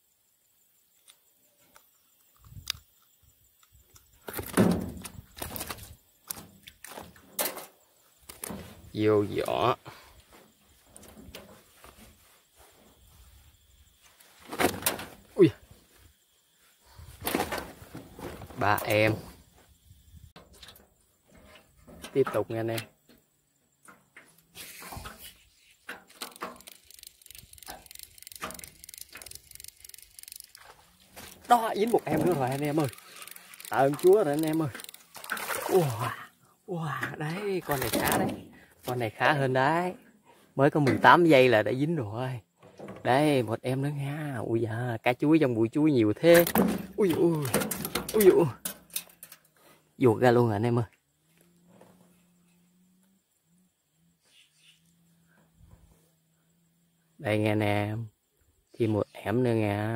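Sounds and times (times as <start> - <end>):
fishing reel ticking: 26.1 - 35.5.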